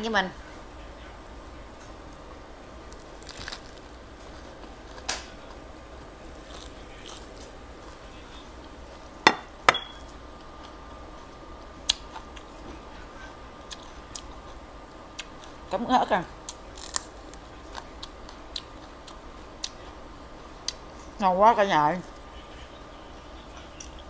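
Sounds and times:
quiet eating: 0.0 - 24.0
glass bowl and dishes clinking: 9.3 - 10.1.

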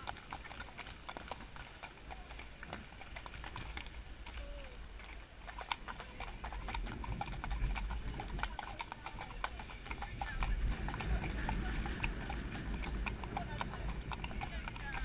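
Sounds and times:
horse hooves clip-clopping on road: 0.0 - 15.0
low rumble: 9.5 - 15.0.

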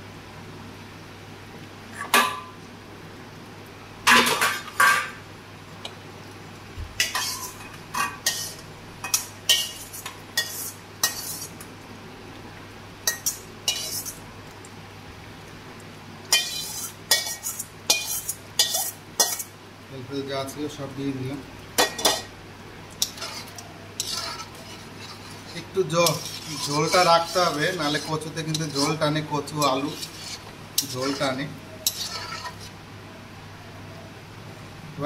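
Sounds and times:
food scraped into pan: 7.0 - 11.6, 13.1 - 14.2, 16.3 - 19.5, 23.0 - 32.8
metal utensils clinking on bowls: 21.8 - 22.3.

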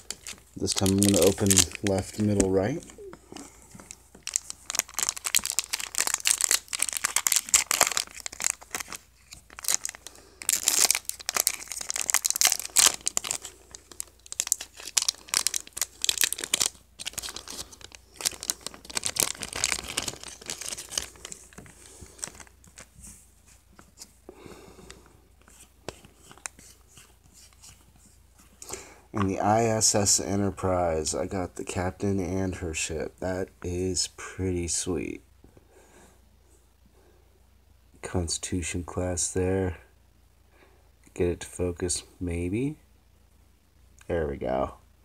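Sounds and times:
cards rustling: 0.0 - 24.1, 25.4 - 28.6
foil pack tearing and crackling: 4.3 - 21.3.

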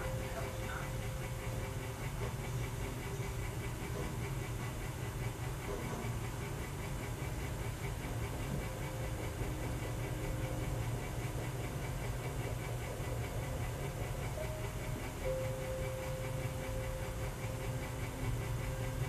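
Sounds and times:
room noise hum and hiss: 0.0 - 19.0.

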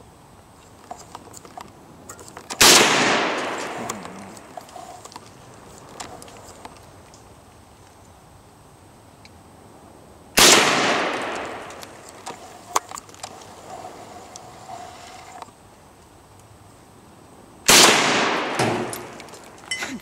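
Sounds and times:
rifle shots with echo: 2.6 - 4.1, 10.4 - 11.8, 17.7 - 19.3.

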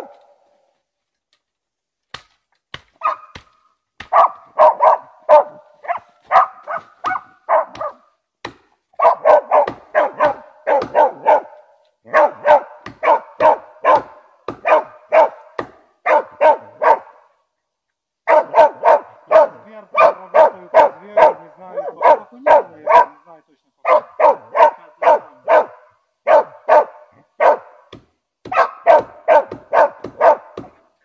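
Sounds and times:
dog barking: 3.0 - 3.4, 4.1 - 8.2, 9.0 - 17.3, 18.2 - 23.2, 23.8 - 27.9, 28.5 - 30.8.

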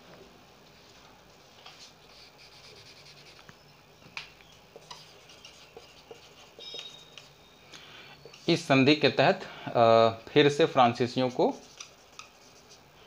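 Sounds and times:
marker scratching on whiteboard: 2.1 - 3.5, 4.7 - 7.4, 11.2 - 12.8
marker squeak: 4.4 - 8.7
marker tapping on whiteboard: 4.7 - 7.3.

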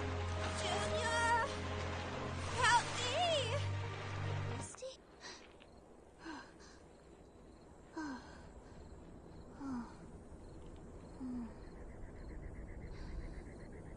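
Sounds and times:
soft sighing breaths: 5.1 - 7.2, 7.8 - 11.8.

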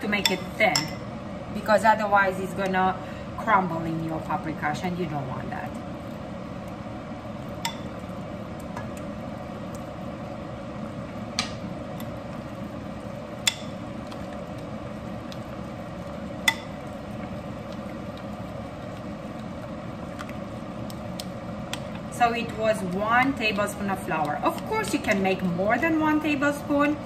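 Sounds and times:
spoon stirring in bowl: 7.4 - 9.1, 11.9 - 22.1.

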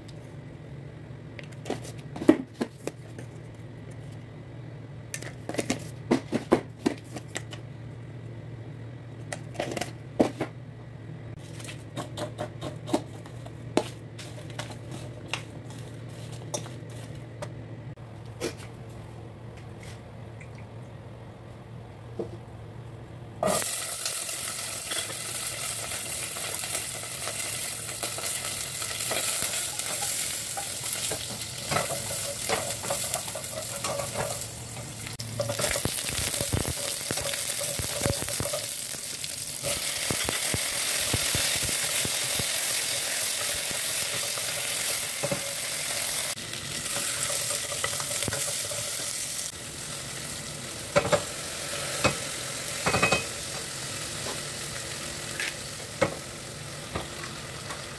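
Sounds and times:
onion and garlic sizzling in oil: 23.4 - 57.9.

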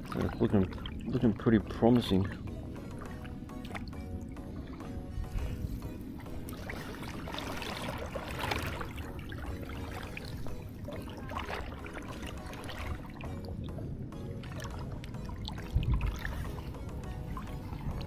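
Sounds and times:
water sloshing around net: 0.0 - 4.0, 6.2 - 13.5, 14.4 - 18.0
steady low rumble: 0.0 - 18.0.

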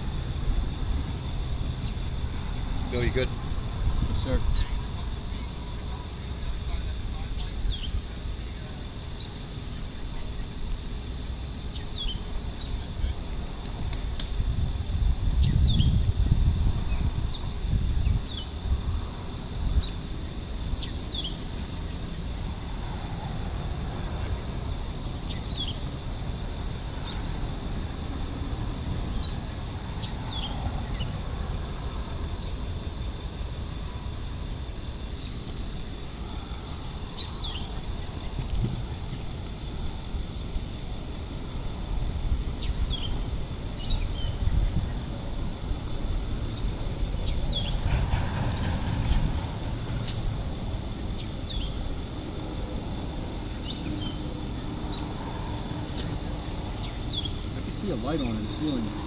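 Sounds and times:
steady high hum: 0.0 - 59.0
bird chirps: 0.2 - 13.7, 42.2 - 45.0, 50.8 - 59.0.

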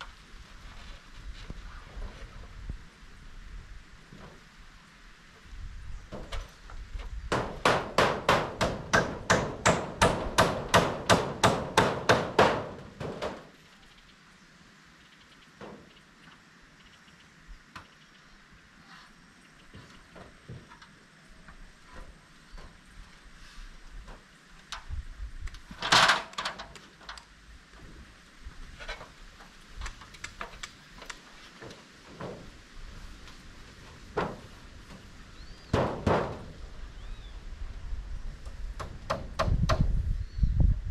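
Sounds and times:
building work knocks and clatter: 6.1 - 13.6, 15.6 - 16.0, 19.7 - 21.0, 25.6 - 35.1, 35.7 - 36.6, 38.4 - 39.9
hammer nailing into wood: 7.3 - 13.4, 35.7 - 36.5, 38.8 - 39.9.

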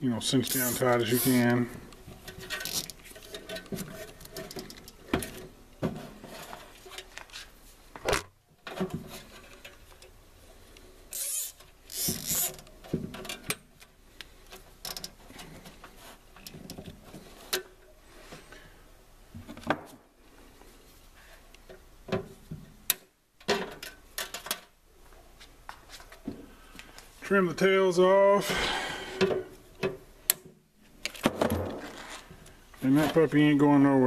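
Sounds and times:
zip ties ratcheting: 11.1 - 12.7.

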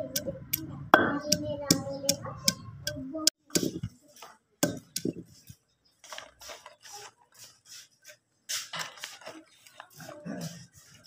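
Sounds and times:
pestle pounding in stone mortar: 0.1 - 2.9, 3.5 - 3.9, 4.6 - 5.2.

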